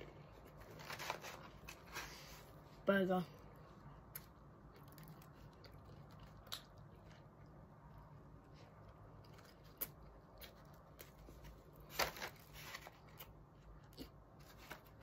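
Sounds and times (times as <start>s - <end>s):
person chewing: 4.0s - 11.9s, 13.0s - 15.0s.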